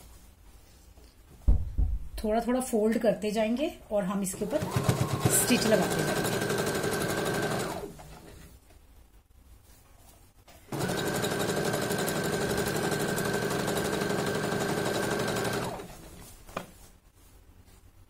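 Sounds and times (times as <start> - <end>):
sewing machine stitching: 4.4 - 8.5, 10.7 - 16.3.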